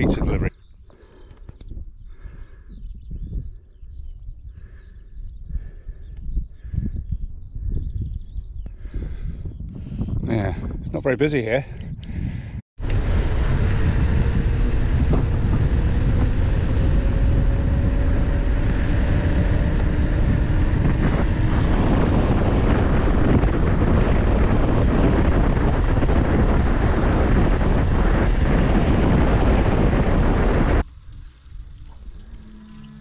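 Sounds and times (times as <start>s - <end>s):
wind rush on microphone: 0.0s - 33.0s
bicycle tyres rumbling on tarmac: 12.8s - 33.0s.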